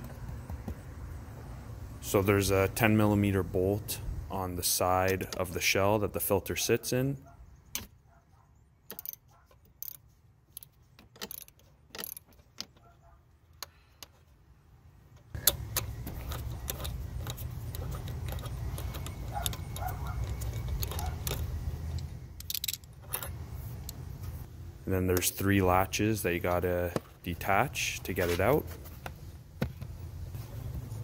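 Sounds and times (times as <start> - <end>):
socket ratchet clicking: 8.9 - 12.8, 15.3 - 24.0.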